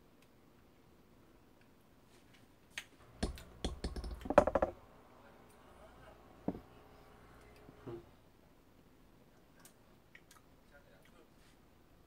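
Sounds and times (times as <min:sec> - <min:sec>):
utensils clicking and knocking: 0:03.0 - 0:04.8.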